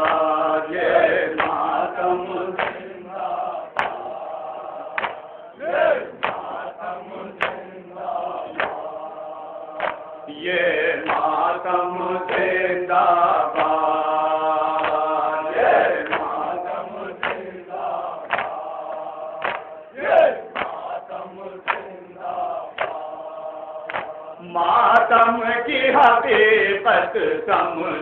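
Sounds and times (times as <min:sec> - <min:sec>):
chest-beating slaps: 0:00.0 - 0:00.4, 0:01.3 - 0:01.8, 0:02.5 - 0:03.0, 0:03.7 - 0:04.2, 0:04.8 - 0:06.7, 0:07.4 - 0:07.8, 0:08.4 - 0:09.0, 0:09.8 - 0:10.3, 0:11.0 - 0:11.5, 0:12.2 - 0:12.6, 0:13.4 - 0:14.0, 0:14.7 - 0:21.0, 0:21.6 - 0:23.2, 0:23.8 - 0:24.4
men chanting a lament: 0:00.0 - 0:28.0.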